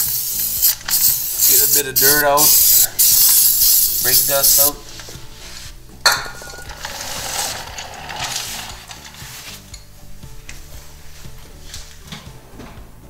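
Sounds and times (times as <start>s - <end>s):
aerosol spray hissing: 0.0s - 5.6s.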